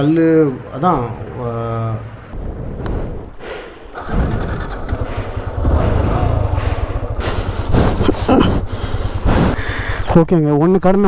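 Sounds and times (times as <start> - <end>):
motorcycle engine running: 4.0 - 10.7.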